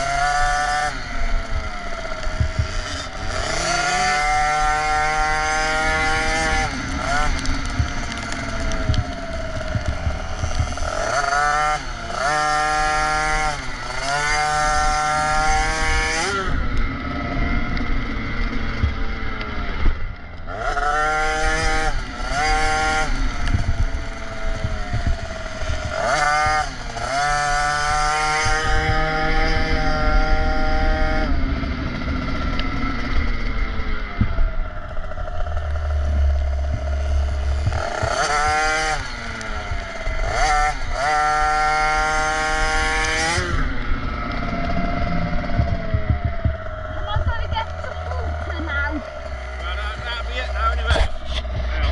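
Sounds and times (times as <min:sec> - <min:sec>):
wind rumble on microphone: 0:00.0 - 0:50.0
two-stroke engine revving: 0:00.0 - 0:51.9.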